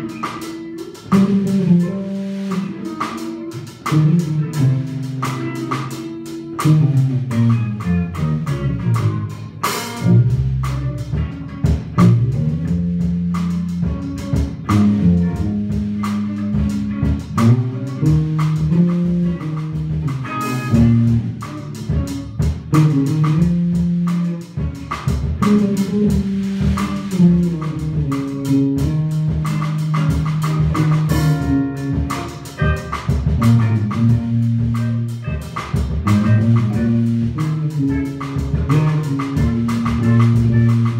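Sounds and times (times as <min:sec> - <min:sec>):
drum hits: 0:00.0 - 0:40.9
electric bass line: 0:00.0 - 0:40.9
funk band playing live: 0:00.0 - 0:40.9.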